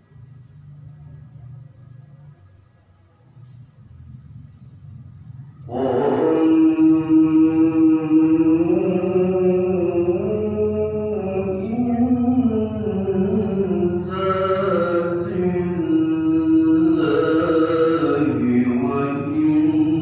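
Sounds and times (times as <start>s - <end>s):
man reciting melodically: 5.5s - 20.0s.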